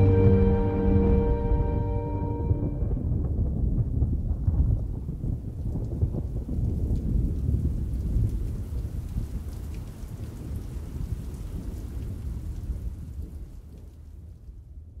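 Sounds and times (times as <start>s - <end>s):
thunder rumbling: 0.0s - 8.4s.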